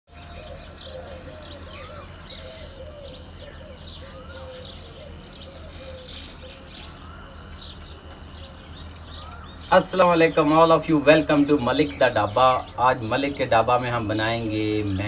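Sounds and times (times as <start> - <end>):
lower wavering bird call: 0.1 - 9.6
rising and falling bird call: 0.1 - 15.0.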